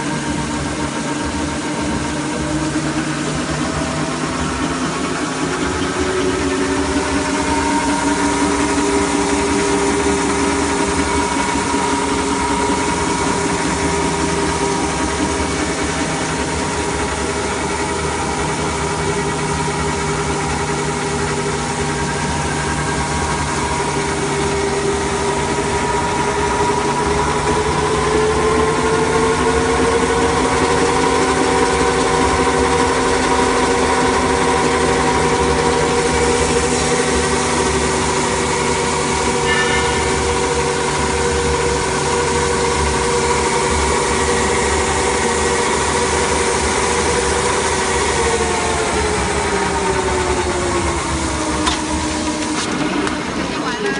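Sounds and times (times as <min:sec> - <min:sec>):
machine mechanical whine: 0:00.0 - 0:53.9.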